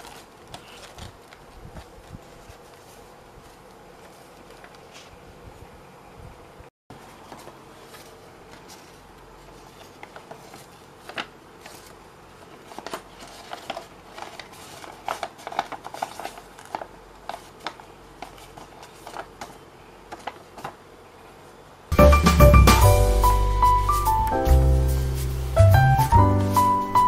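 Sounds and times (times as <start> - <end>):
paper rustling: 0.0 - 5.2, 6.9 - 20.8.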